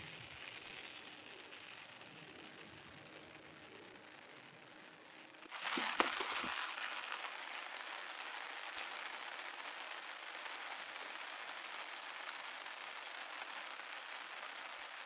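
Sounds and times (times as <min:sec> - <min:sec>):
rain on a tarp: 0:00.0 - 0:15.0
brief knocks and rustles: 0:05.5 - 0:06.6.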